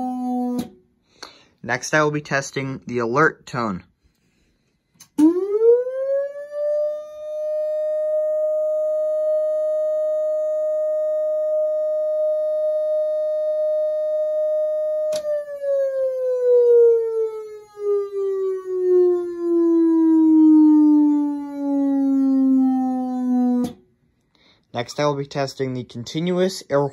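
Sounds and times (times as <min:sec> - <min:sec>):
muffled siren tone: 0:00.0 - 0:00.8, 0:05.1 - 0:23.8
click: 0:05.0 - 0:05.2.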